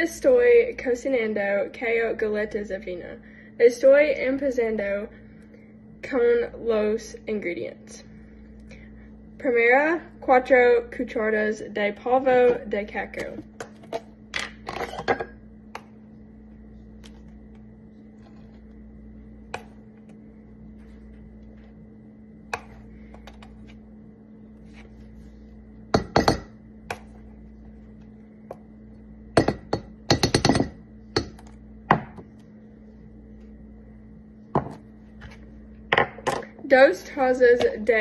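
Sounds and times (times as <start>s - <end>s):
low hum: 2.2s - 38.0s
metal spoon tapping a pot: 26.0s - 26.5s, 29.4s - 31.4s.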